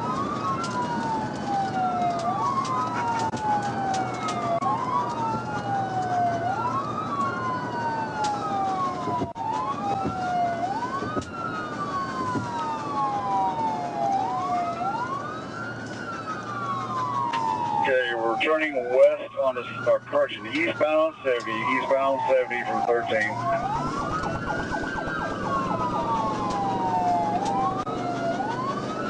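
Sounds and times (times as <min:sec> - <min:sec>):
police siren wailing: 0:00.0 - 0:29.0
road noise: 0:00.0 - 0:29.0
second siren wailing: 0:00.0 - 0:29.0.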